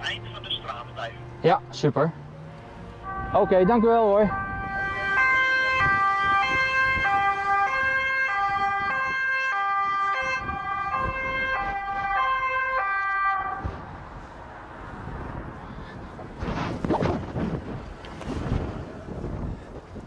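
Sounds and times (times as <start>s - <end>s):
police car two-tone siren: 3.0s - 13.6s.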